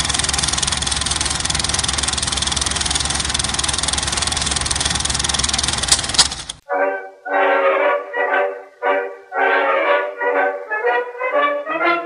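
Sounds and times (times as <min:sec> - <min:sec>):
film projector clatter: 0:00.0 - 0:06.6.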